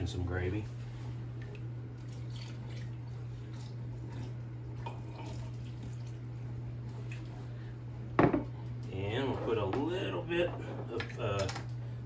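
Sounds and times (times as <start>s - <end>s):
steady low hum: 0.0s - 12.0s
water trickling and splashing: 1.4s - 7.4s.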